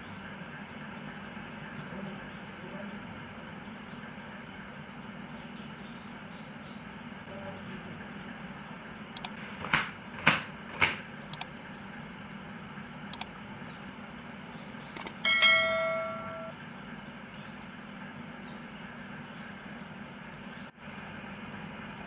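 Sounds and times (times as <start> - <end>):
steady low hum: 13.2 - 16.6
metallic clang ringing: 15.0 - 16.5.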